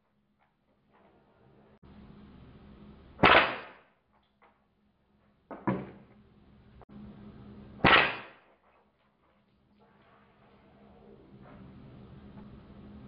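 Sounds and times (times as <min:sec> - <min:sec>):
air rifle shot cracks: 0:03.2 - 0:03.8, 0:07.8 - 0:08.4.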